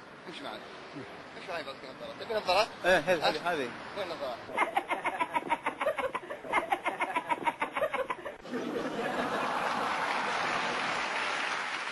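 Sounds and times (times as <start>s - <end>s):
hearty laughter: 4.6s - 10.2s
steady applause: 9.1s - 11.9s.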